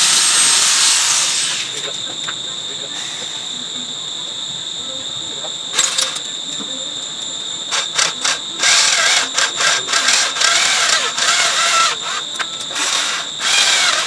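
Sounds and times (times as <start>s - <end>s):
electric drill on metal: 0.0s - 1.9s, 5.7s - 6.6s, 7.6s - 14.0s.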